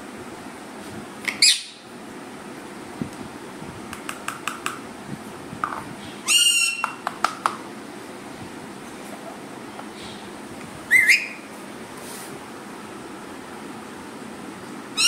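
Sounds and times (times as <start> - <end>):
parrot calling: 1.3 - 1.8, 6.2 - 7.0, 10.9 - 11.5.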